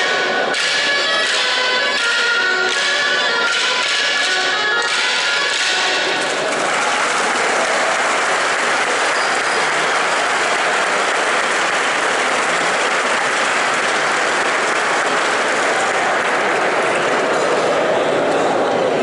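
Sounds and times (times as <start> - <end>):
audience applauding: 4.8 - 18.5.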